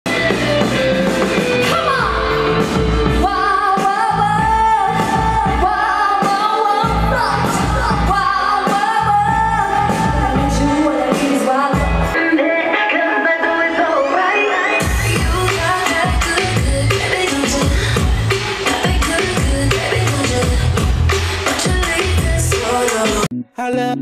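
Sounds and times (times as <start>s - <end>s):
woman singing: 1.6s - 23.3s
heavy pulsing bass beat: 6.8s - 11.1s, 14.8s - 23.2s.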